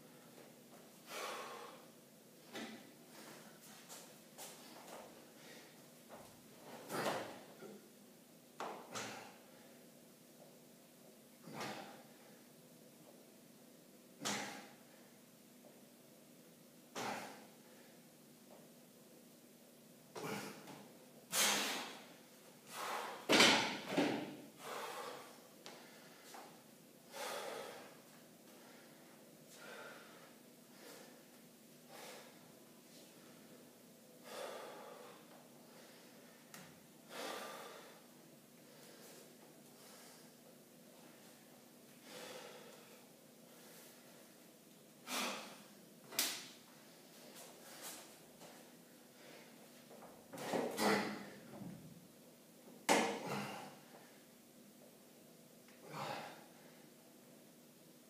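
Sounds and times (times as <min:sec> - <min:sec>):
man exhaling forcefully: 0:01.1 - 0:01.9, 0:08.9 - 0:09.4, 0:14.2 - 0:14.8, 0:16.9 - 0:17.9, 0:20.2 - 0:20.7, 0:21.3 - 0:22.1, 0:22.7 - 0:23.4, 0:24.6 - 0:25.4, 0:27.1 - 0:27.9, 0:45.0 - 0:45.7, 0:52.9 - 0:53.8, 0:55.8 - 0:56.5.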